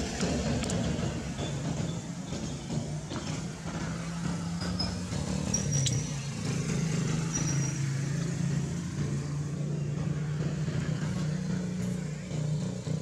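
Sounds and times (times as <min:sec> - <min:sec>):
small engine running: 0:00.0 - 0:13.0.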